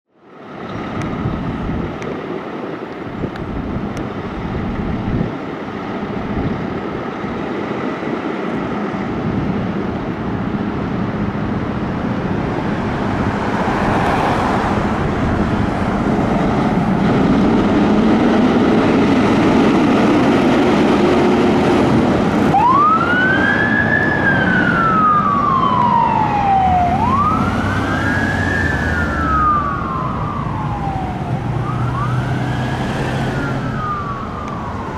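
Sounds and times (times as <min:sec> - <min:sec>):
fire truck diesel engine: 0:00.2 - 0:34.9
electronic siren wailing: 0:22.4 - 0:34.9.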